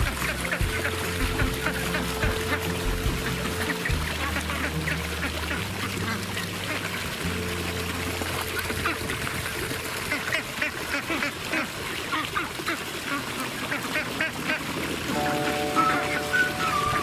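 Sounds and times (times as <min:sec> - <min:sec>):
music with long low notes: 0:00.0 - 0:10.1, 0:15.1 - 0:17.0
ducks quacking: 0:00.0 - 0:17.0.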